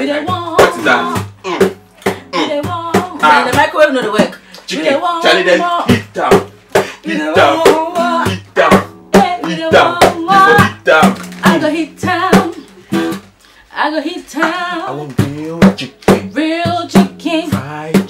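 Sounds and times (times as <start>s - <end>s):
acoustic guitar strumming: 0.0s - 13.4s, 14.4s - 18.0s
people singing along: 2.2s - 3.7s, 4.7s - 12.6s.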